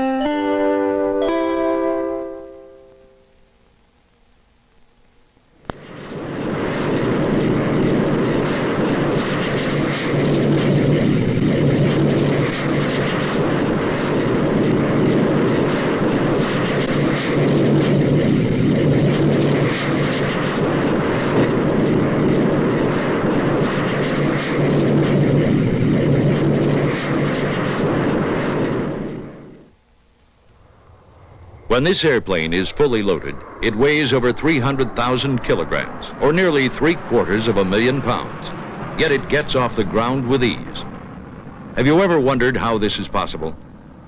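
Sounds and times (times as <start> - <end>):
aircraft engines running: 0.0 - 44.0.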